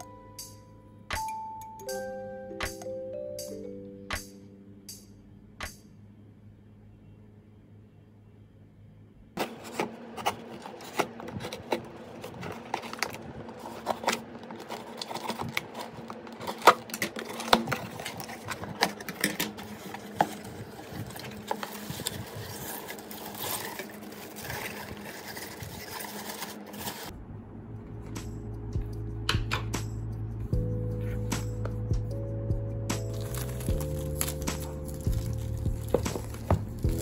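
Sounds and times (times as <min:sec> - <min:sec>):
paper wrapping rustling: 0:09.4 - 0:27.1, 0:33.0 - 0:37.0.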